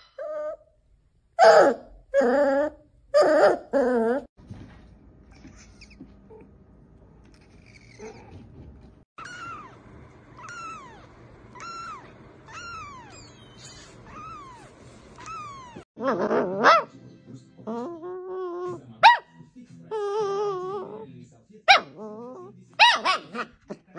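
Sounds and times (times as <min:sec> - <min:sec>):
puppy whining: 0:00.0 - 0:00.7, 0:01.4 - 0:04.3, 0:05.3 - 0:06.5, 0:07.2 - 0:08.5, 0:09.2 - 0:16.9, 0:17.6 - 0:19.2, 0:19.9 - 0:21.1, 0:21.7 - 0:23.2.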